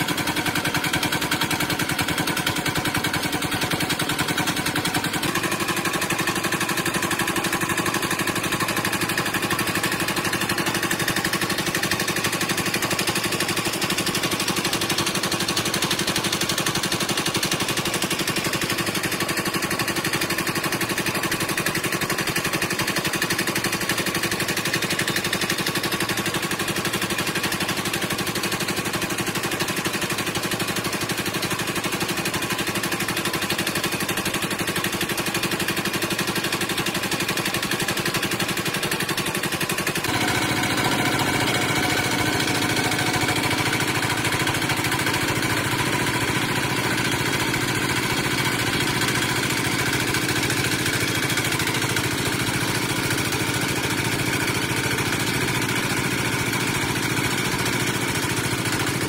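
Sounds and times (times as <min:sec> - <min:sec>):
wood lathe motor rattling: 0:00.0 - 0:59.0.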